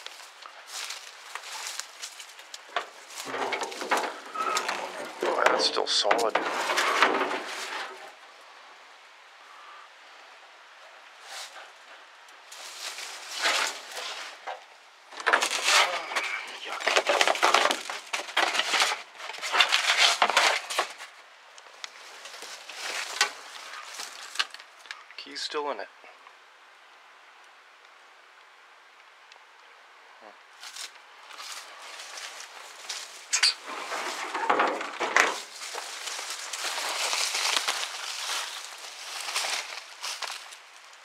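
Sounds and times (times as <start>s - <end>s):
footsteps through dry leaves: 0.0s - 5.4s, 12.5s - 14.4s, 21.9s - 24.6s, 30.6s - 34.4s, 35.2s - 41.0s
brittle debris crunching: 0.0s - 8.2s, 12.5s - 25.1s, 30.6s - 41.0s.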